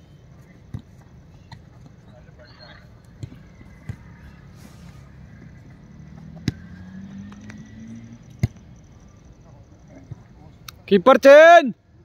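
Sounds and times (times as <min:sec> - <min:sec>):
vehicle engine drone: 0:00.0 - 0:10.8
football kick thuds: 0:03.1 - 0:04.1, 0:08.3 - 0:08.6.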